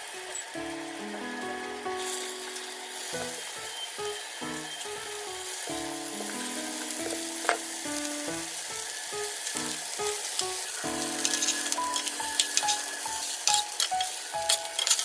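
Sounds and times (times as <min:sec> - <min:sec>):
light background music: 0:00.0 - 0:15.0
patties sizzling in hot oil: 0:00.0 - 0:15.0
metal spatula scraping pan: 0:11.2 - 0:15.0.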